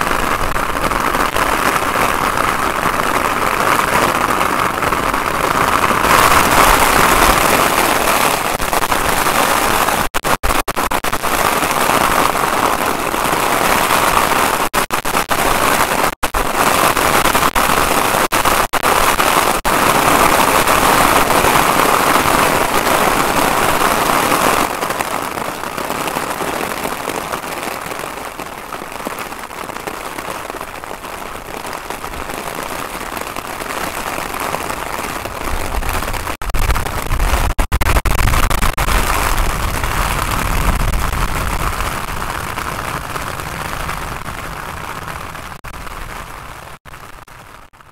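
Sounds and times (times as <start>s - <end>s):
heavy rain pouring: 0.0s - 47.9s.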